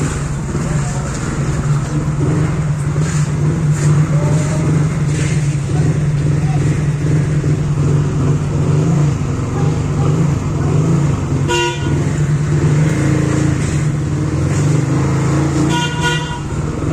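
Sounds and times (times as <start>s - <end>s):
vehicle engine humming: 0.0s - 16.9s
car horn toot: 11.4s - 12.2s, 15.6s - 16.6s.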